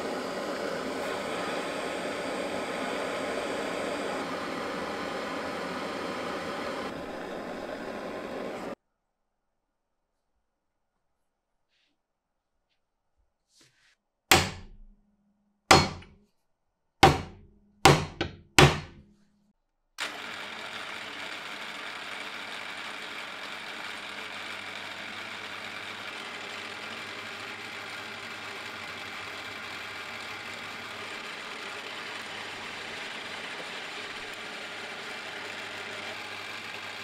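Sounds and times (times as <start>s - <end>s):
drill cutting into steel: 0.0s - 8.8s, 20.0s - 37.0s
sharp metallic knocks: 15.7s - 16.2s, 17.0s - 19.0s.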